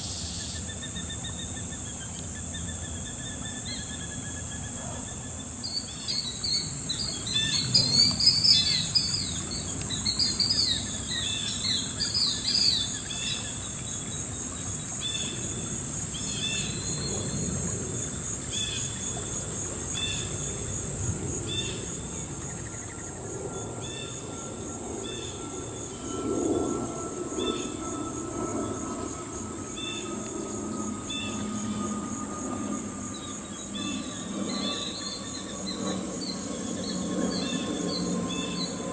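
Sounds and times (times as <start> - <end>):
high-pitched insect drone: 0.0 - 38.9
killdeer calling: 0.2 - 14.1.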